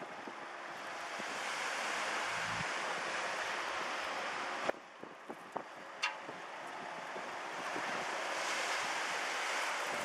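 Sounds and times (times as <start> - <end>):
wind gust on microphone: 0.0 - 10.0.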